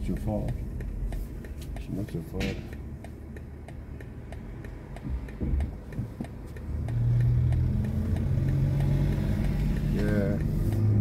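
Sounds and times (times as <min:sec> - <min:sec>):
turn signal ticking: 0:00.0 - 0:11.0.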